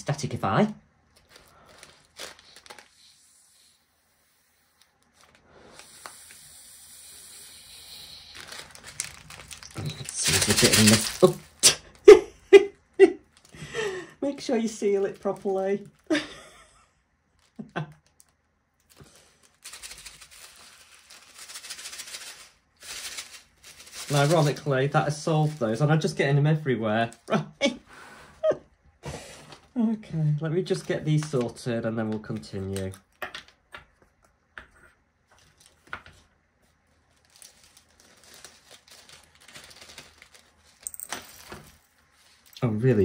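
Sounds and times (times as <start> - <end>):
plastic bag crinkling: 1.1 - 2.9, 8.1 - 11.6, 13.2 - 16.3, 17.3 - 26.2, 35.3 - 43.0.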